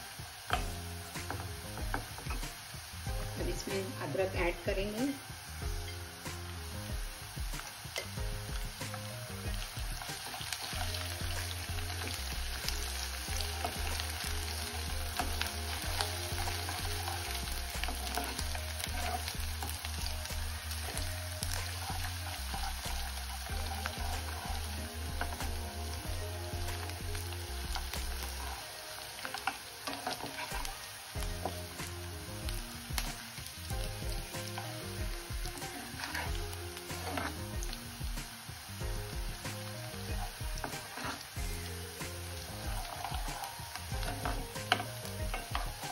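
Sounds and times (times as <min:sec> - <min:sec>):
onions sizzling in oil: 0:00.0 - 0:45.9
steel spoon scraping pan: 0:15.1 - 0:19.4, 0:29.3 - 0:30.8, 0:35.9 - 0:37.4, 0:40.6 - 0:41.3.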